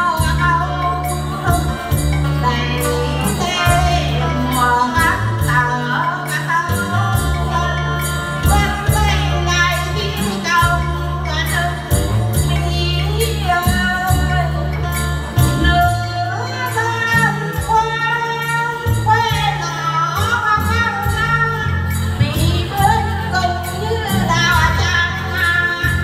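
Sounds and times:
plucked lutes: 0.0s - 26.0s
women singing: 0.0s - 26.0s
deep bass drone: 6.7s - 16.2s.

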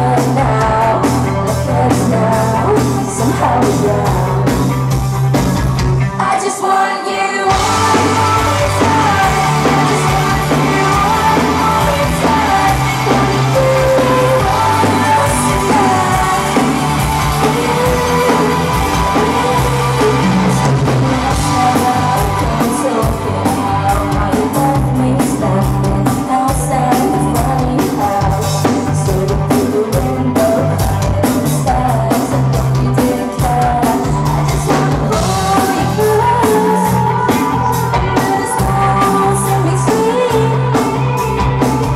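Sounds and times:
woman singing: 0.0s - 4.8s, 6.0s - 41.9s
steady drum beat: 0.0s - 6.1s, 7.5s - 41.9s
live band over pa: 0.0s - 41.9s.

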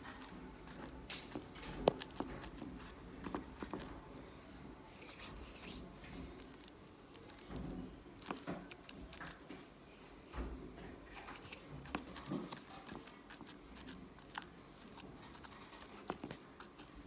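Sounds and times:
slime crackling and popping: 6.3s - 9.4s.

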